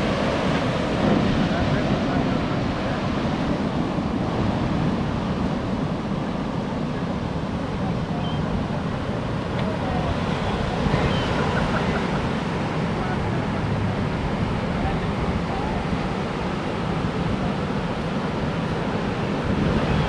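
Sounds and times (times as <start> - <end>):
surf breaking on beach: 0.0 - 20.0
wind on microphone: 0.0 - 20.0.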